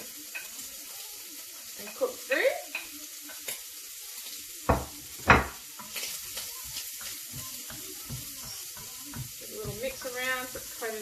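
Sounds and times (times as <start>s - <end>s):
onion sizzling in a frying pan: 0.0s - 11.0s
wooden spoon scraping a pan: 5.1s - 11.0s.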